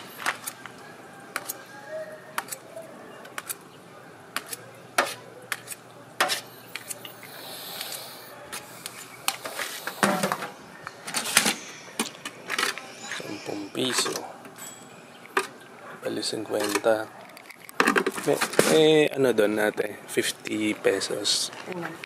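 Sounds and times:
scoop scraping metal bucket: 9.4 - 14.8.

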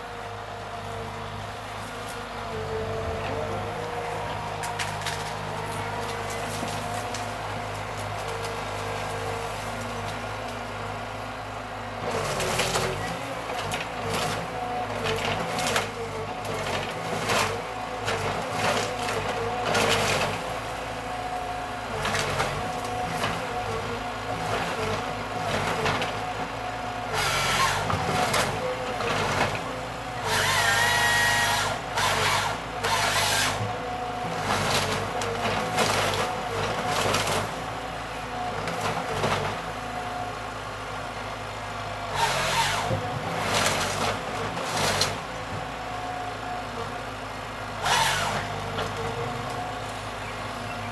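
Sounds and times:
diesel engine running: 0.0 - 50.9
branches cracking and snapping: 4.5 - 10.6, 12.1 - 20.9, 34.4 - 37.7, 42.2 - 45.2.

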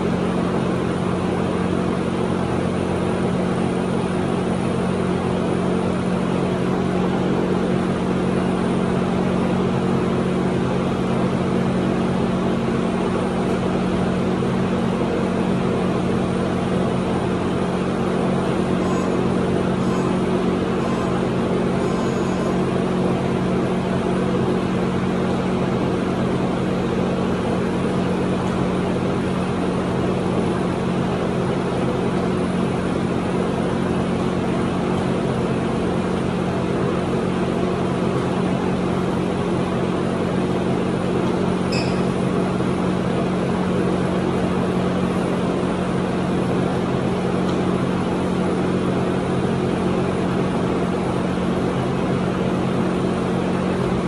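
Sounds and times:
machine hum: 0.0 - 54.0
brief high chirp: 41.7 - 42.1.

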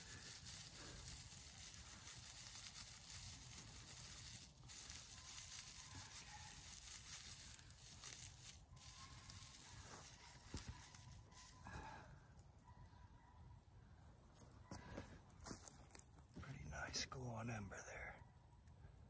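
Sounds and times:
dry grass rustling and crackling: 0.0 - 12.6, 15.4 - 16.8.

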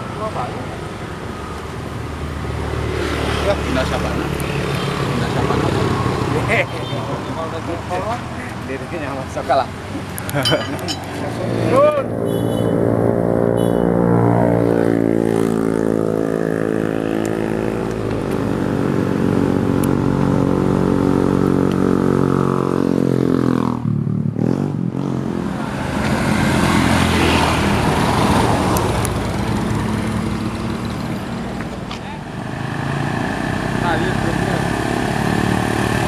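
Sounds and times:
truck engine drone: 8.6 - 36.0
rough noisy engine: 25.4 - 36.0.

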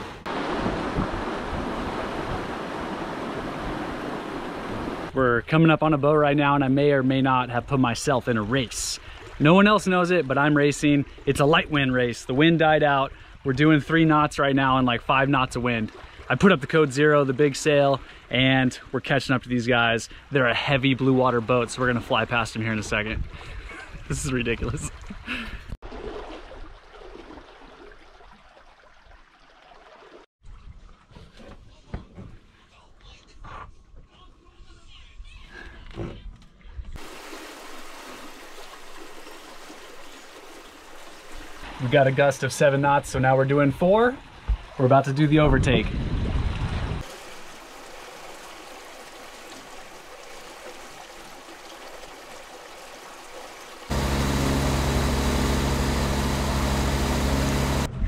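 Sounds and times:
water rushing along boat hulls: 0.0 - 5.7, 6.3 - 25.2, 37.0 - 57.9.

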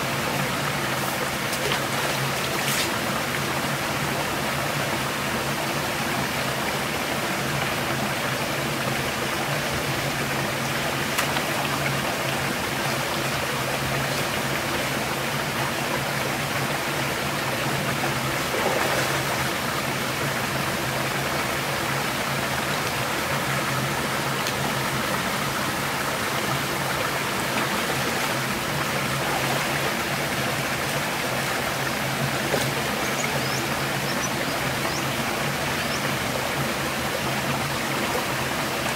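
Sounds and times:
stream water flowing: 0.0 - 38.9
small splashes: 18.1 - 19.7.

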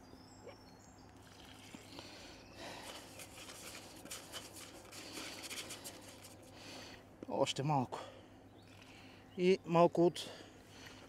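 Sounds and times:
wet pellets rustling in a tub: 1.2 - 6.5.

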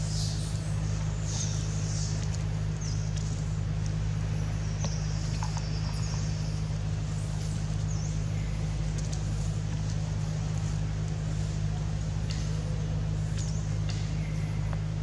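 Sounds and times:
low motor hum: 0.0 - 15.0.

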